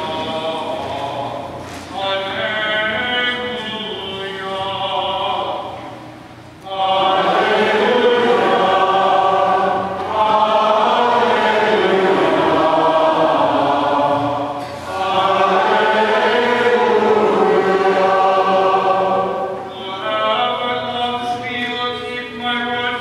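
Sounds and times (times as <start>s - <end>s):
choir singing chant: 0.0s - 1.5s, 6.6s - 20.9s.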